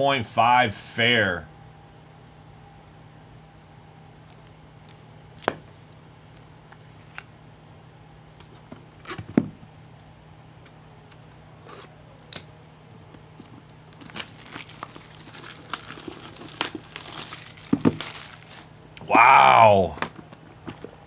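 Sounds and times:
card pack wrapper crinkling and tearing: 0:13.4 - 0:18.8.

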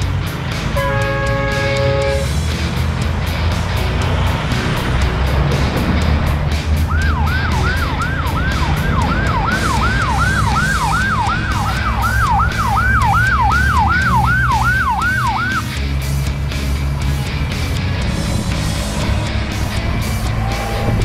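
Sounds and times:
siren yelping: 0:06.9 - 0:15.7.

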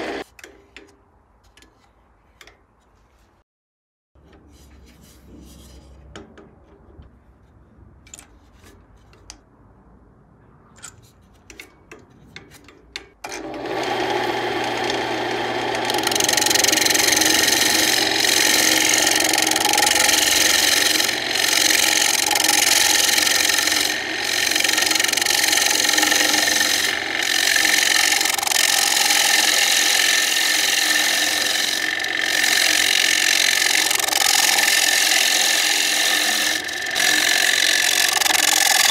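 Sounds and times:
gouge scraping spinning wood: 0:00.0 - 0:00.2, 0:13.4 - 0:38.9
lathe motor running: 0:00.0 - 0:00.2, 0:13.3 - 0:38.9.

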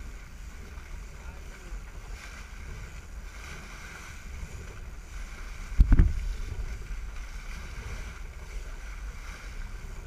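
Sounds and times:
boat engine rumble: 0:00.0 - 0:10.0
churning water: 0:00.0 - 0:10.0
wind on microphone: 0:00.0 - 0:10.0
loud low thump: 0:05.8 - 0:06.2.

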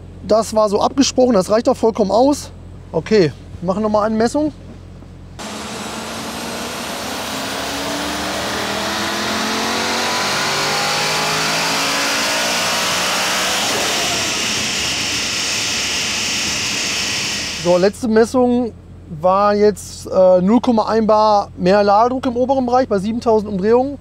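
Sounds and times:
car engine revving: 0:05.4 - 0:17.9.

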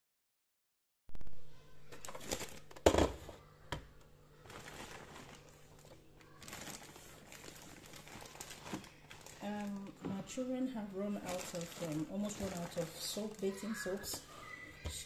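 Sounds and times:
plastic bags crinkling: 0:01.9 - 0:03.0, 0:04.4 - 0:14.6.

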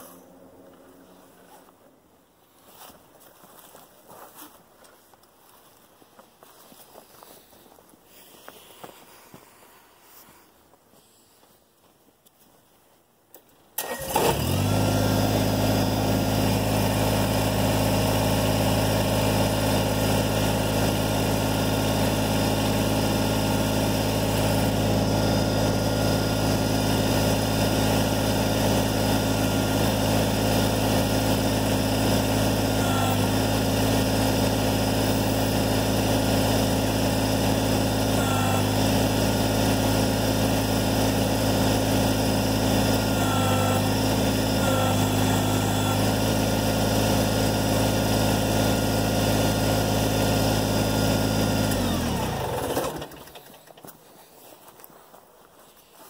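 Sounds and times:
tractor diesel engine running: 0:13.8 - 0:54.0.

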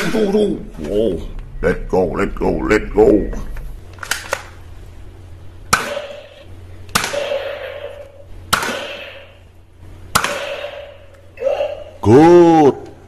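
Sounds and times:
toy pistol shots ringing: 0:05.7 - 0:09.4.

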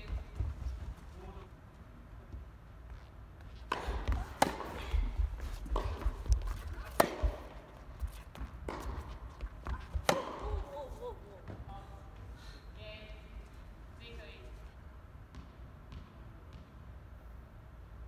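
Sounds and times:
tennis ball bounces: 0:03.6 - 0:11.6, 0:15.3 - 0:16.7
tennis racket strikes: 0:03.7 - 0:09.4, 0:10.0 - 0:10.7.

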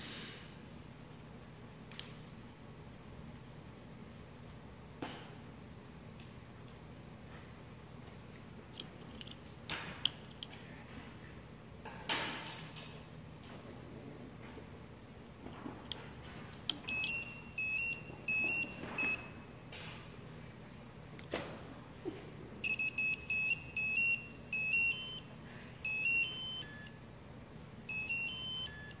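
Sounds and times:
piezo buzzer beeping a melody: 0:16.9 - 0:27.0, 0:27.9 - 0:29.0.

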